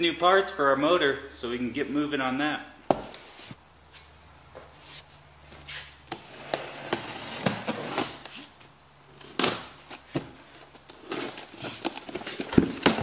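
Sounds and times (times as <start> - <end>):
tape and cardboard tearing: 9.2 - 13.0.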